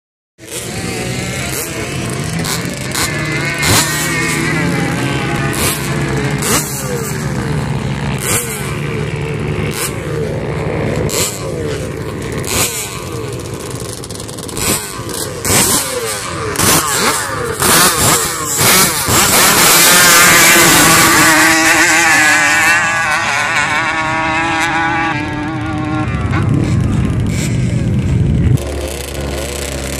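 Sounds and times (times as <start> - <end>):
quad engines idling and revving: 0.4 - 29.9.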